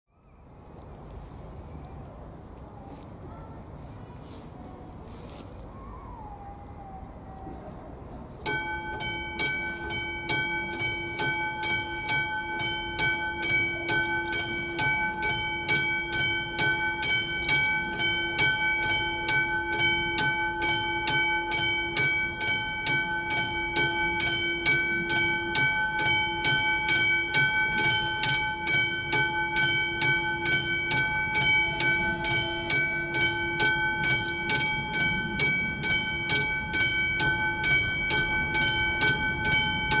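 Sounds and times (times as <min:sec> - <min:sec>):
level crossing warning bell ringing: 0:08.4 - 0:40.0.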